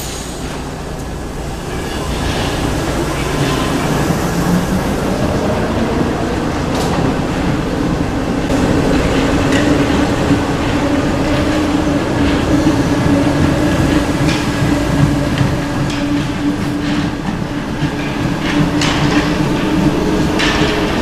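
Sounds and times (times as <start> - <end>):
metro train rumbling past: 0.0 - 21.0
wheels clicking over rail joints: 8.5 - 21.0.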